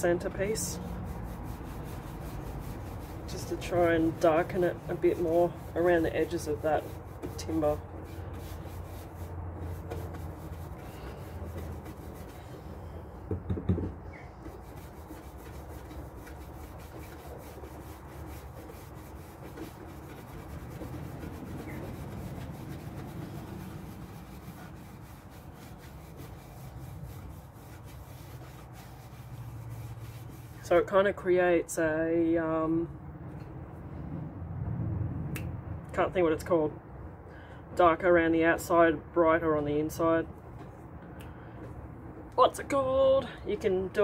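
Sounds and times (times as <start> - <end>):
brush scrubbing on wood: 0.0 - 13.3, 13.9 - 31.0
knocks: 13.2 - 14.0.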